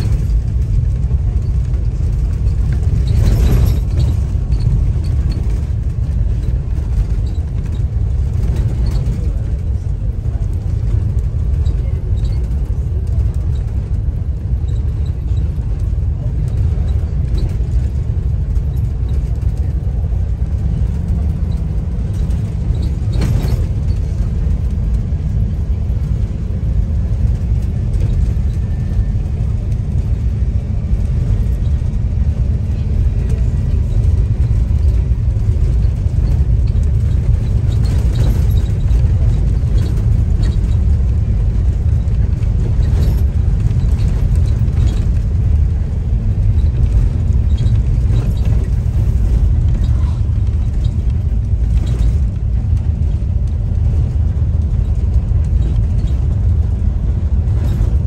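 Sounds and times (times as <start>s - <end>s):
bus engine and road rumble: 0.0s - 58.0s
knocks and rattles: 0.0s - 58.0s.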